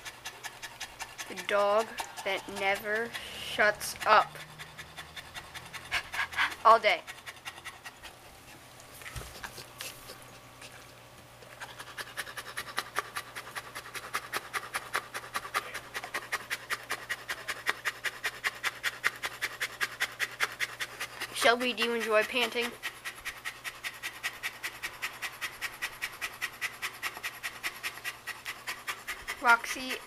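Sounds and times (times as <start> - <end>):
dog panting: 0.0 - 30.0.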